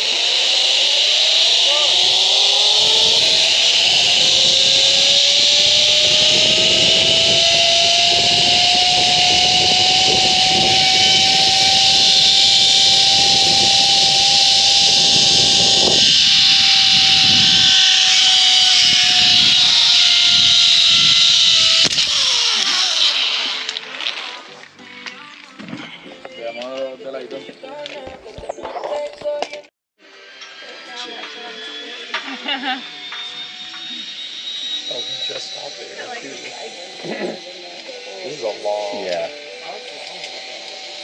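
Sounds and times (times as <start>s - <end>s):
zip-line pulleys whining on cable: 0.0s - 25.0s, 30.0s - 41.0s
wind rumble on microphone: 2.0s - 22.2s.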